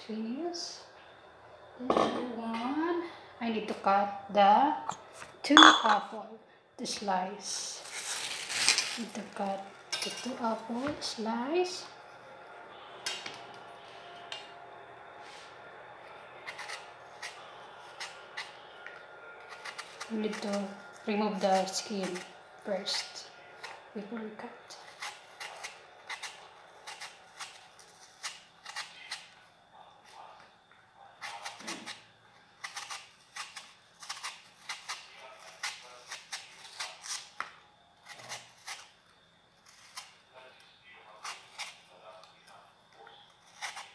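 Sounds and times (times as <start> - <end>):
knife scraping apple skin: 7.6 - 11.2, 16.4 - 18.6, 19.4 - 29.4, 31.2 - 39.0, 39.6 - 40.2, 41.1 - 41.9, 43.3 - 43.9.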